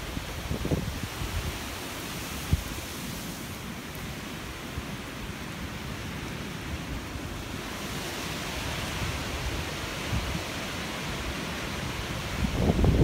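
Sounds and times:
wind buffeting microphone: 0.0 - 2.9, 7.6 - 13.0
gusty wind through trees: 0.0 - 13.0.

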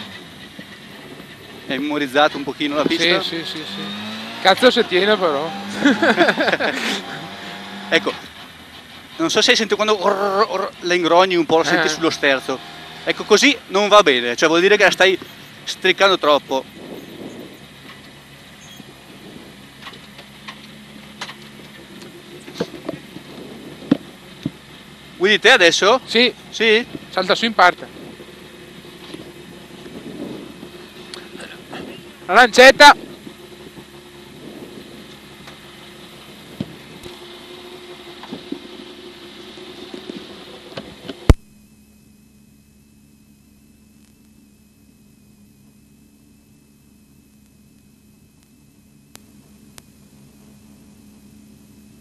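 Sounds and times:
car engine idling: 0.0 - 52.0
sharp click: 40.8 - 41.5.

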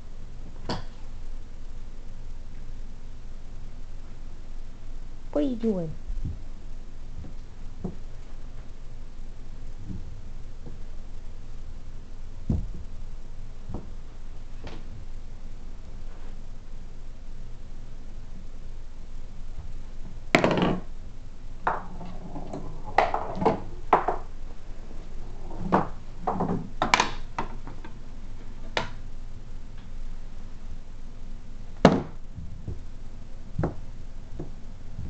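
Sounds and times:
ball knocking on wooden table: 20.3 - 20.9, 21.6 - 24.3.

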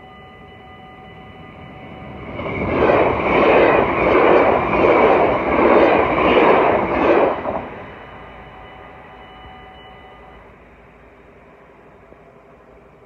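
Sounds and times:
electric train passing at speed: 0.0 - 13.0.

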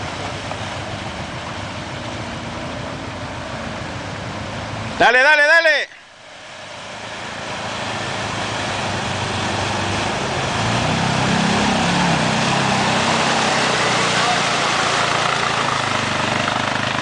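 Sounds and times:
water splashing around wheels: 0.0 - 17.0
quad engine running: 6.9 - 17.0.

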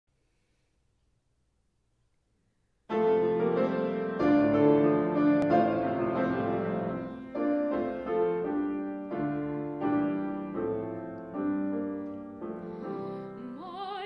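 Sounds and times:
grand piano playing: 2.9 - 14.0.

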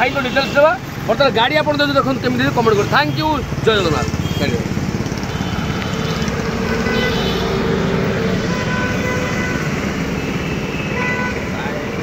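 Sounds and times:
vehicle horn: 5.3 - 7.8, 8.4 - 11.7.

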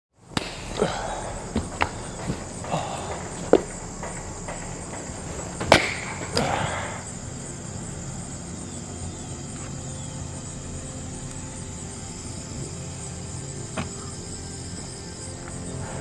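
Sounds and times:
faint steady hum: 0.2 - 16.0
axe splitting firewood: 0.3 - 6.7.

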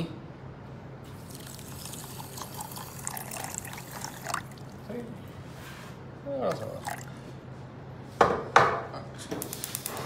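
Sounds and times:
water pouring into a saucepan: 1.2 - 4.8, 6.5 - 7.1.

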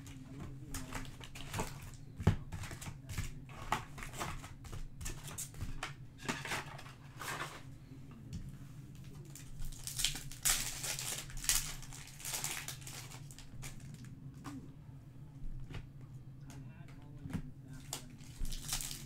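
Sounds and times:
low steady hum: 0.0 - 19.0
card wrappers crinkling and tearing: 0.7 - 2.0, 9.0 - 14.1, 17.8 - 19.0.

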